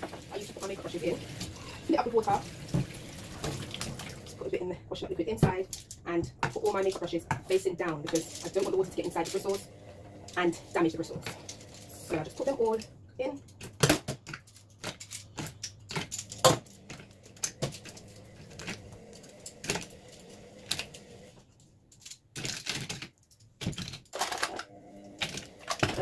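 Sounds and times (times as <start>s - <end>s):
brush handles clattering in plastic cup: 5.5s - 9.7s.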